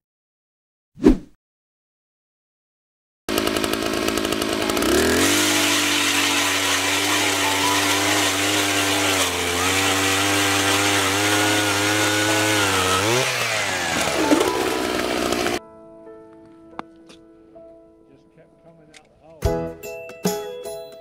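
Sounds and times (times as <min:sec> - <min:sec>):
ice auger engine revving: 0:03.3 - 0:15.6.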